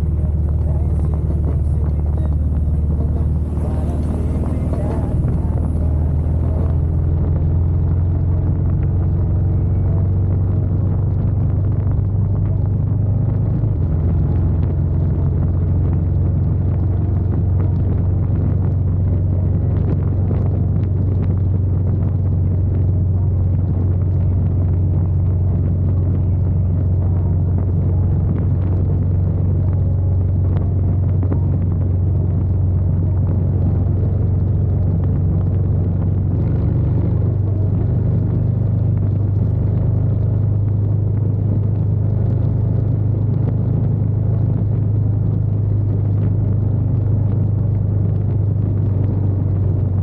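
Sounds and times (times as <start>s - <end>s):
motorcycle engine cruising: 0.0s - 50.0s
wind and road noise: 0.0s - 50.0s.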